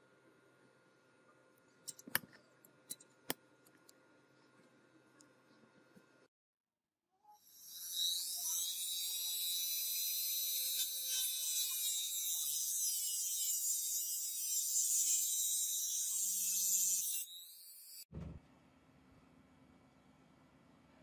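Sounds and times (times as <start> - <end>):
rotary tool cutting wire: 7.7 - 18.0.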